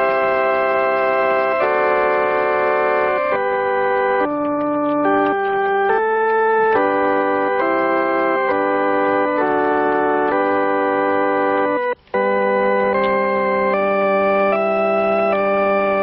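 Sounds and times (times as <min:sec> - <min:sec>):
pipe organ playing held chords: 0:00.0 - 0:16.0.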